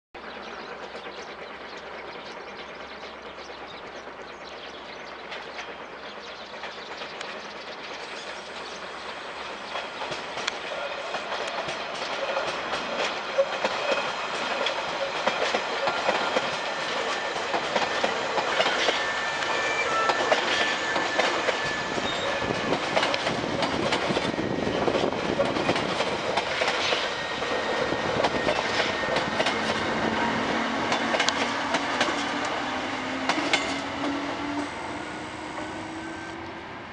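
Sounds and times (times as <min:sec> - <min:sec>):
train wheels clattering over rail joints: 0:00.5 - 0:34.6
electric train motors whining: 0:14.0 - 0:36.6.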